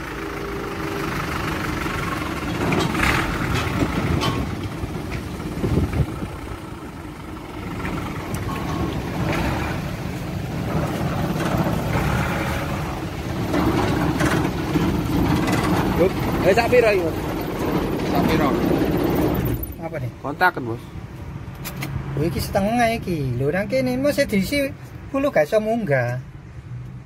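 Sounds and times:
diesel truck engine running: 0.0s - 20.3s.

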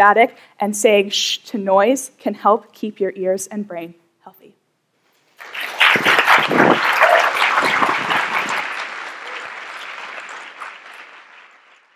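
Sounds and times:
audience applauding: 5.4s - 11.9s.

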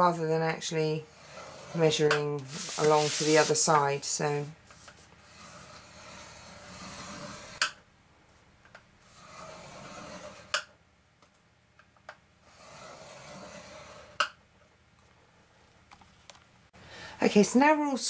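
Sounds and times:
stylus scraping cardstock: 1.2s - 3.9s.

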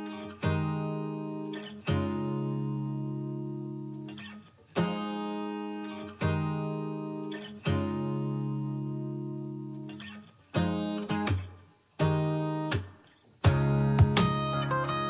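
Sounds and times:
guitar strumming chords: 0.0s - 15.0s.

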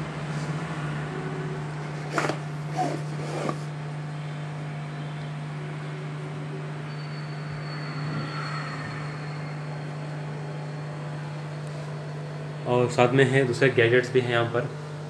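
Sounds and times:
low hum: 4.7s - 12.6s.

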